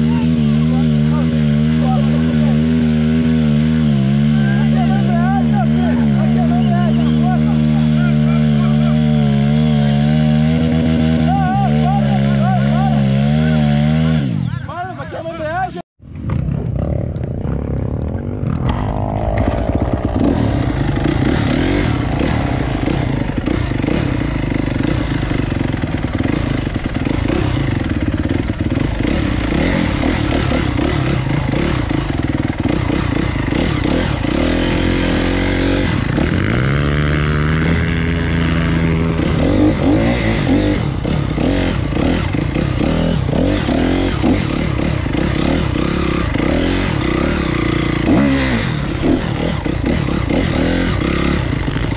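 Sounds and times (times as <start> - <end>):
dirt bike engine revving: 0.0 - 51.9
scraping and rattling: 17.2 - 23.5.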